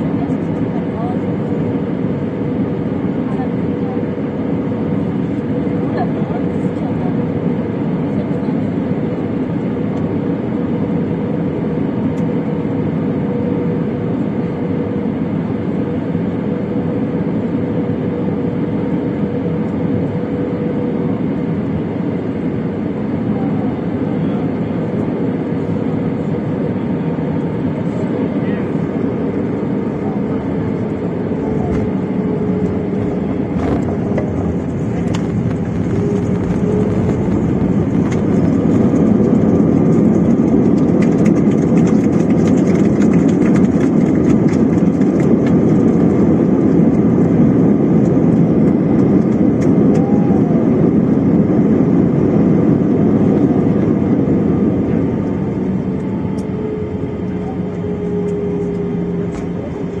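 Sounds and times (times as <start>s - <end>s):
jet engines and rushing air: 0.0s - 60.0s
small rattles and clicks: 40.0s - 45.9s.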